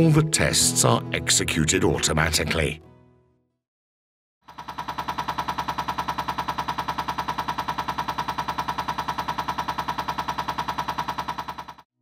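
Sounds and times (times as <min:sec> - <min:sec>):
fast even injector clatter: 0:04.5 - 0:11.8.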